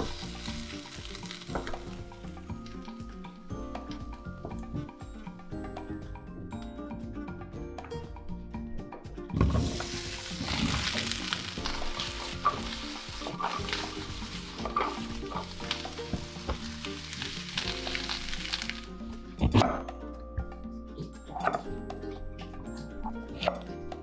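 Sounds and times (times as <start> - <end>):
zucchini sizzling in a pan: 0.0 - 3.0, 9.6 - 19.0.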